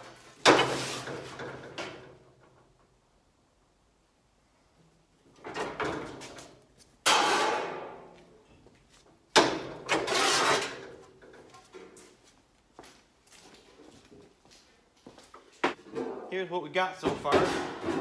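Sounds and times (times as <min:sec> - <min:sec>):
sheet metal scraping: 0:09.8 - 0:11.1.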